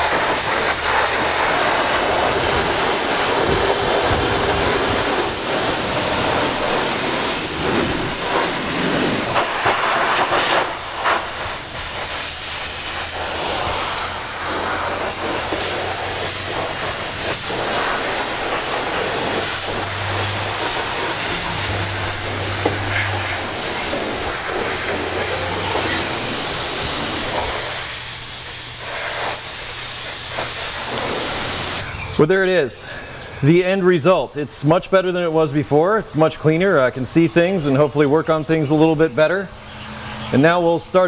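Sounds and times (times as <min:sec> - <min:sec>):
pressure washer spraying water: 0:00.0 - 0:31.8.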